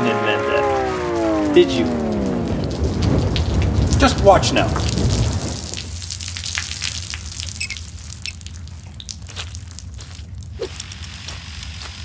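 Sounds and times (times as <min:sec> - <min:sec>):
low steady hum: 0:00.0 - 0:03.9
shower water splashing on concrete: 0:00.6 - 0:12.0.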